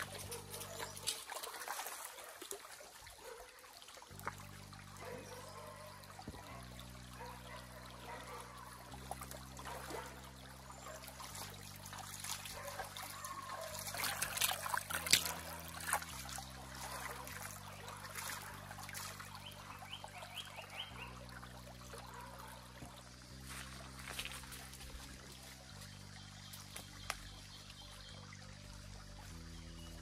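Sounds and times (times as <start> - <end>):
stream trickling over stones: 0.0 - 30.0
splashing hands in water: 10.8 - 21.0.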